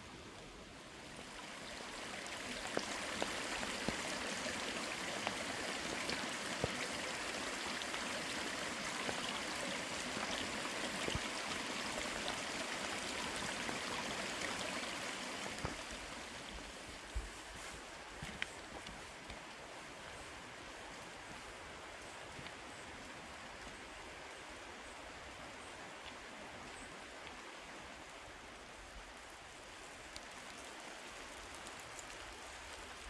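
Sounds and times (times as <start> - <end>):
rain drips: 0.0 - 33.0.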